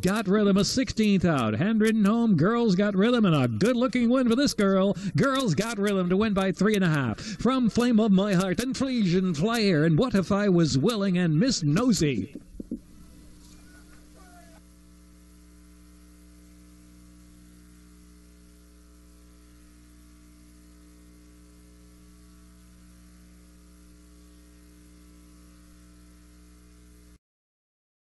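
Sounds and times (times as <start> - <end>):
electrical mains hum: 0.0 - 27.2.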